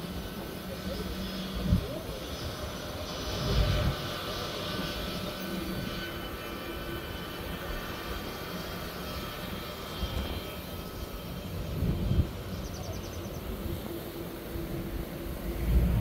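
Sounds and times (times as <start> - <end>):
distant jet engines whining: 0.0 - 16.0
low rumble: 15.4 - 16.0.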